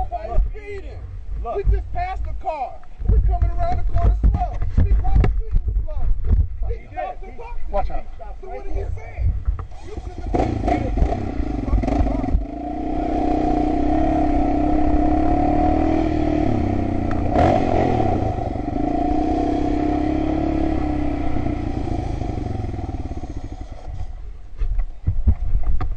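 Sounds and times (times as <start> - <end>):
atv engine on gravel road: 9.6 - 24.6.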